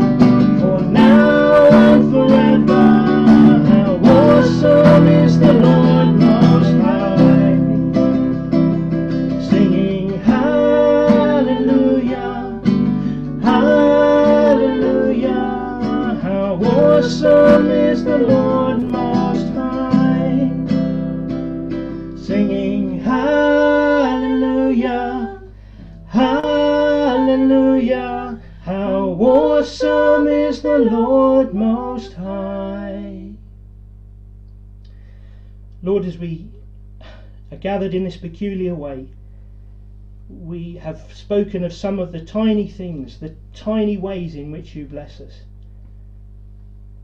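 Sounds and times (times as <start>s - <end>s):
man and woman singing: 0.0s - 8.4s, 9.3s - 20.8s, 22.2s - 33.4s
strummed acoustic guitar: 0.0s - 27.5s.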